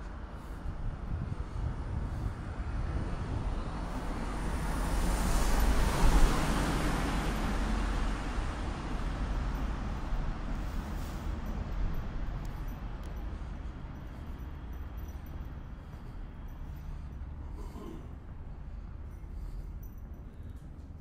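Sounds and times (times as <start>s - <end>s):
city traffic noise: 0.0s - 21.0s
vehicle passing close by: 2.5s - 11.1s.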